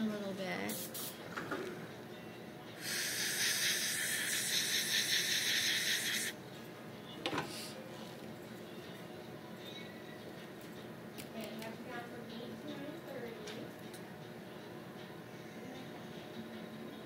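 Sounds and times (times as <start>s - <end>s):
dental equipment air hiss: 0.7s - 1.2s, 2.8s - 6.4s.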